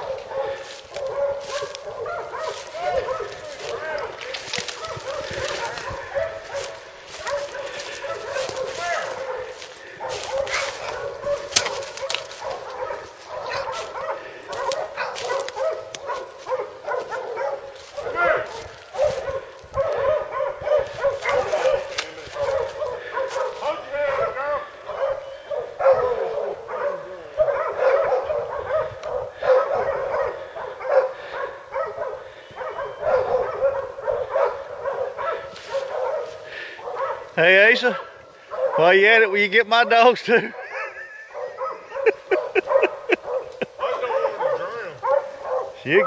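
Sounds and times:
dogs barking and yelping: 0.0s - 46.0s.

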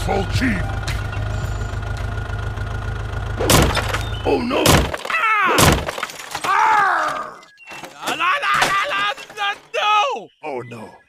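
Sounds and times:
tractor engine droning: 0.0s - 9.8s
loud thunks: 3.4s - 9.8s.

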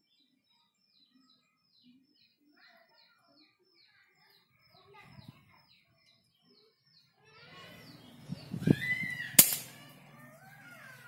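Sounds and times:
small birds chirping: 0.0s - 11.0s
air rifle shot: 9.4s - 9.8s.

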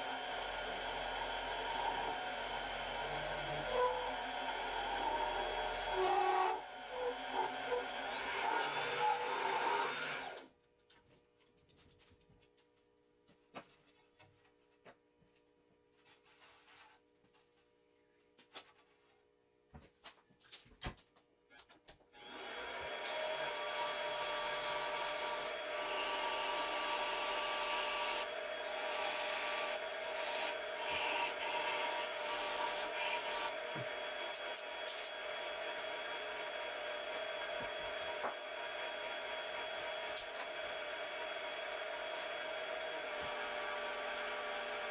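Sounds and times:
lathe motor whining: 0.0s - 10.5s, 22.2s - 44.9s.

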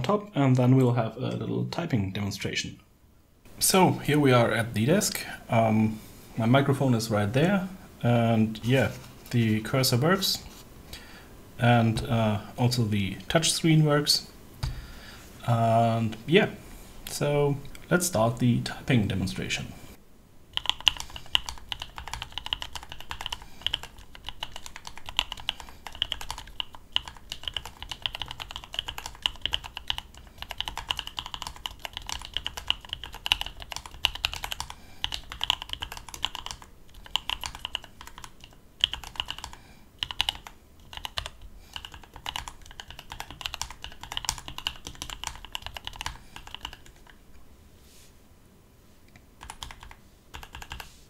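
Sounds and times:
mechanical keyboard typing: 20.6s - 47.2s, 49.4s - 50.8s.

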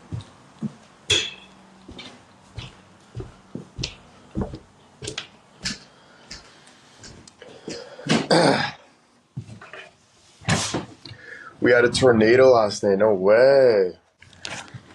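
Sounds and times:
person clearing throat: 7.6s - 8.8s.

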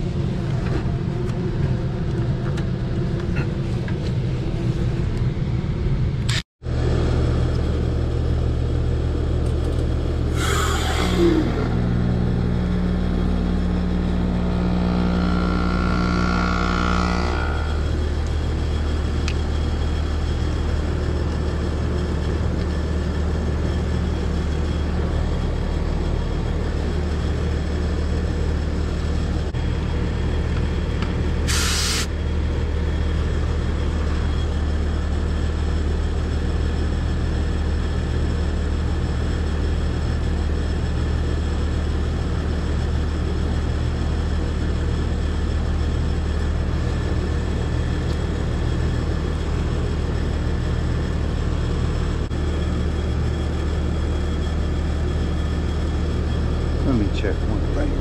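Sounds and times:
compressor and fan hum: 0.0s - 58.0s
short hiss: 31.5s - 32.1s.

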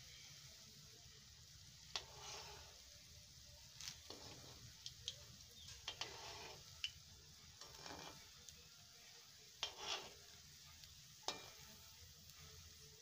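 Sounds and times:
dough frying in oil: 0.0s - 13.0s.

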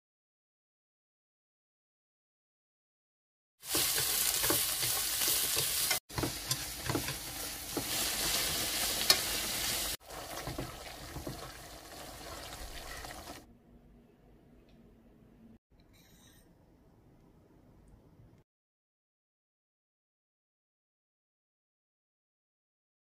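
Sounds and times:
food sizzling in a frying pan: 3.6s - 13.4s.

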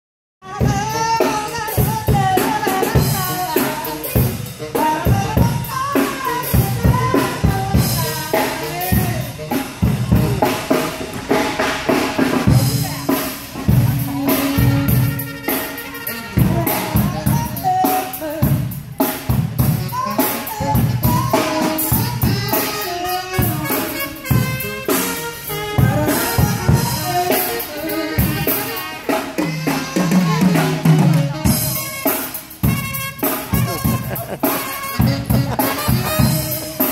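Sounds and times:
drum kit beat: 0.4s - 36.9s.

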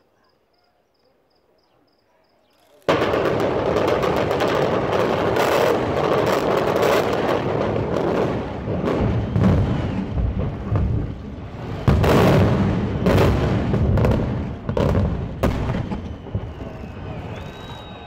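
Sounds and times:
faint insect chirping: 0.0s - 2.9s
crackling detonations and collapse: 2.9s - 18.0s
loud explosive blast: 2.9s - 18.0s.

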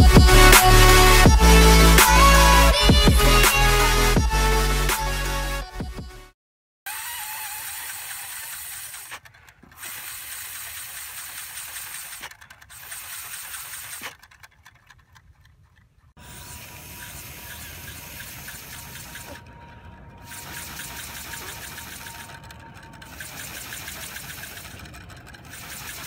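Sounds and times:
small engine clattering: 6.9s - 26.0s.

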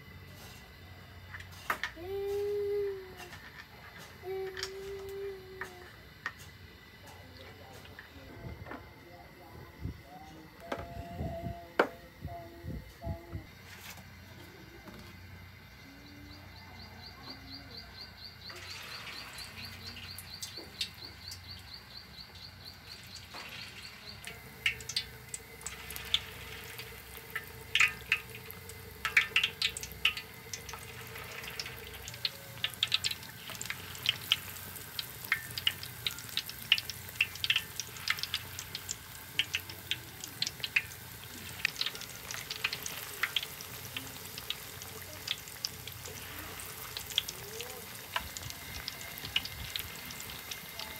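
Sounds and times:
deep-frying sizzle: 0.0s - 8.0s, 13.5s - 50.9s
oil crackles and pops: 1.2s - 8.1s, 18.4s - 50.9s.

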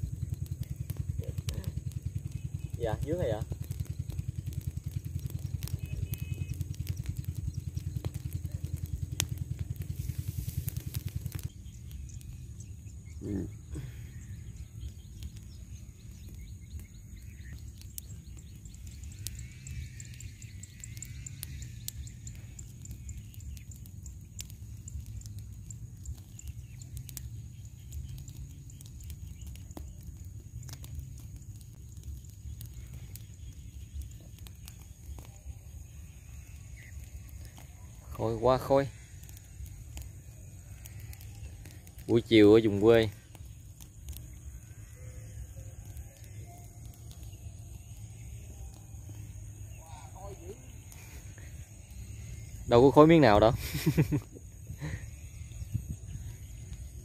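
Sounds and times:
rapid low throbbing: 0.0s - 37.7s
low rumble: 0.0s - 38.0s, 43.1s - 52.8s, 53.5s - 57.0s
faint bird chirps: 0.0s - 57.0s.

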